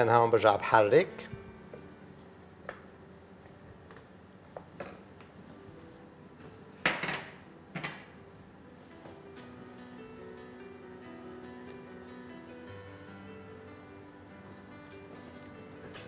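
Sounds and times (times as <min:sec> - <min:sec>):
pot and utensils clattering: 0:06.8 - 0:08.2.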